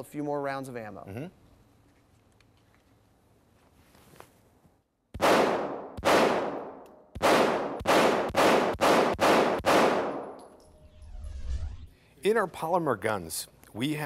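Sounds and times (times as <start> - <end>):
pistol shots echoing indoors: 5.2 - 10.6.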